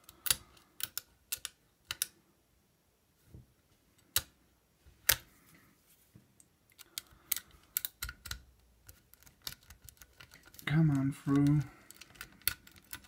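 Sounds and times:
lock pick metallic clicks: 0.0s - 2.2s, 6.8s - 10.7s.

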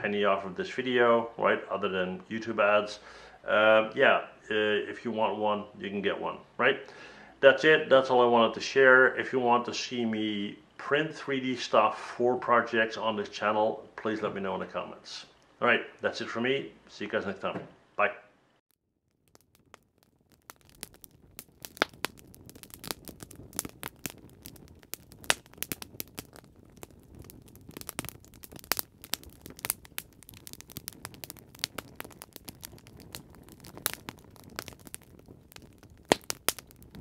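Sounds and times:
campfire crackling: 18.7s - 37.0s.

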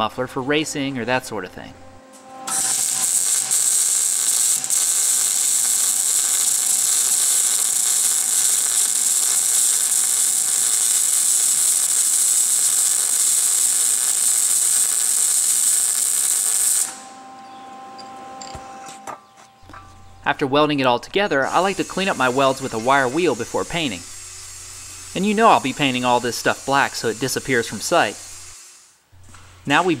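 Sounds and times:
mig welder hissing: 2.0s - 17.2s, 20.1s - 30.0s.

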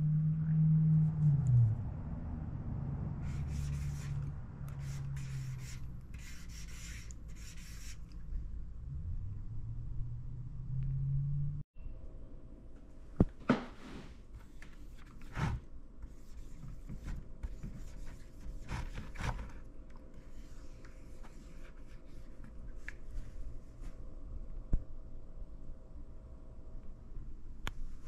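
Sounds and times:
marker scraping plastic bucket: 3.2s - 8.2s, 14.4s - 19.6s.

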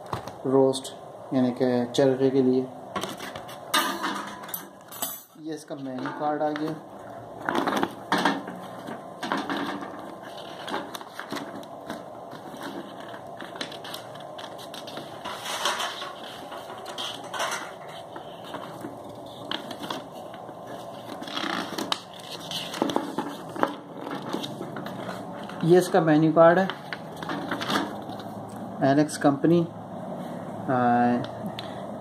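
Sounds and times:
paper pages rustling: 3.0s - 3.7s, 5.9s - 28.5s.

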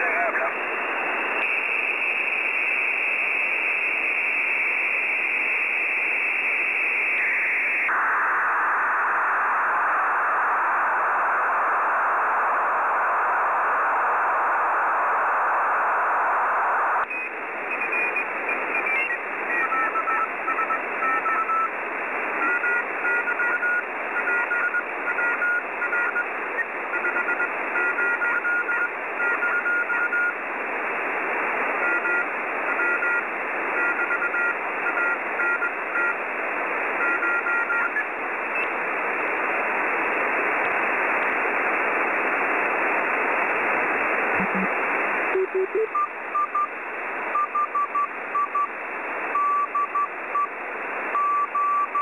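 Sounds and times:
receiver hiss: 0.0s - 52.0s
morse code beeps: 22.4s - 26.3s, 26.9s - 30.4s, 31.8s - 33.2s, 33.8s - 36.2s, 37.0s - 38.0s, 44.4s - 44.7s, 45.3s - 46.7s, 47.3s - 48.7s, 49.3s - 50.5s, 51.2s - 52.0s.

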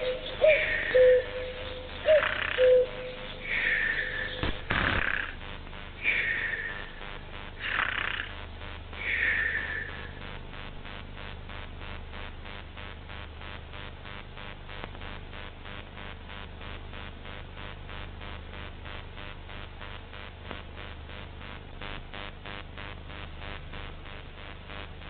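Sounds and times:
faint pulsing hiss: 0.0s - 25.0s
cartoon snoring: 7.6s - 8.4s.

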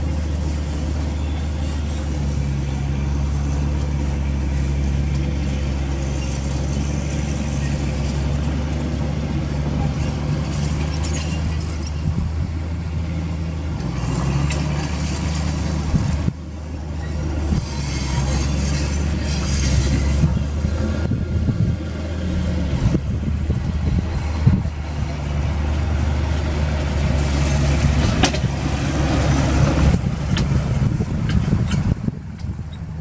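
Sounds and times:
bulldozer diesel engine droning: 0.0s - 33.0s.

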